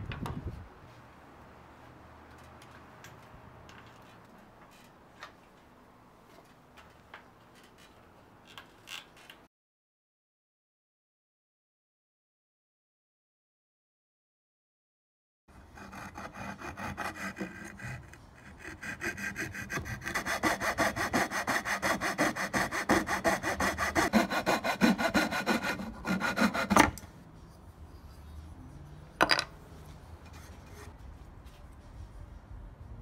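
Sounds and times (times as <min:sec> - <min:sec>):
coping saw cutting wood: 0:15.6 - 0:27.0.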